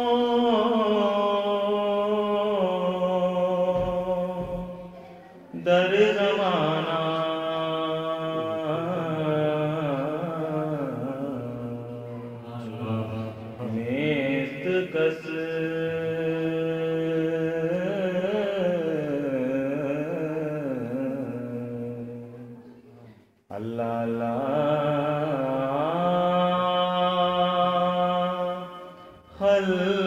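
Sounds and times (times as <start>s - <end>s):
person chanting long gliding notes: 6.1s - 22.8s.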